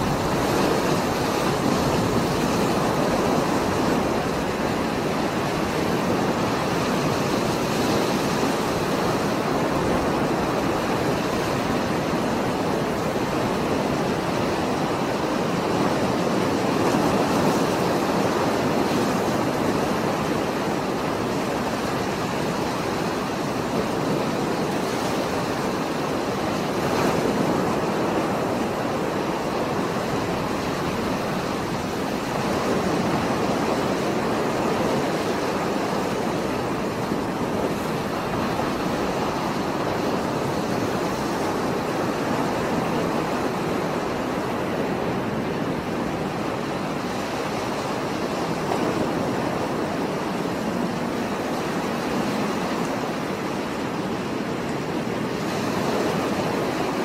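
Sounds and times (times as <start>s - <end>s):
heavy surf on rocky shore: 0.0s - 57.0s.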